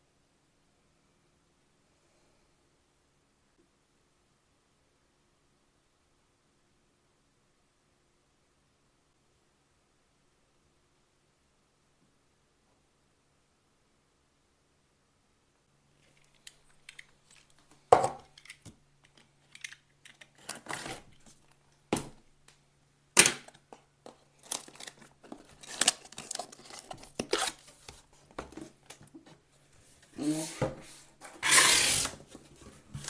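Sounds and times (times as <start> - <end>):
seal tearing: 19.5 - 21.3, 24.3 - 27.8, 31.4 - 32.2.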